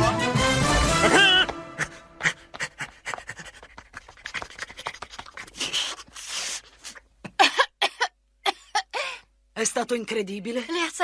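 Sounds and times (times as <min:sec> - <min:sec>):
man panting: 0:01.0 - 0:07.0.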